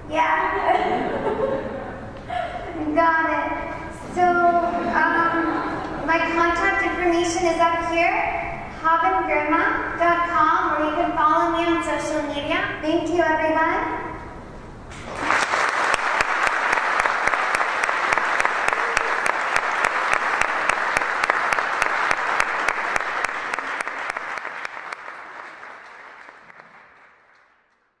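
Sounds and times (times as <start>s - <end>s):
audience applauding: 14.9s - 27.9s.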